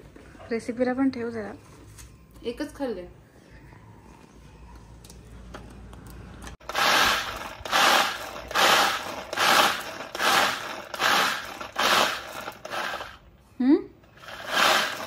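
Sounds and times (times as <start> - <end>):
food chopper blades grinding biscuits: 6.6 - 13.2, 14.1 - 15.0.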